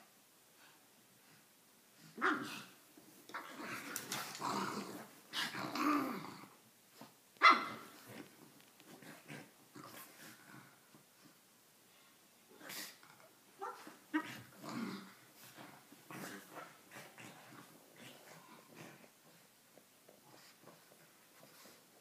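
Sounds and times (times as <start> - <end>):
dogs growling: 2.2 - 6.6, 12.7 - 19.4.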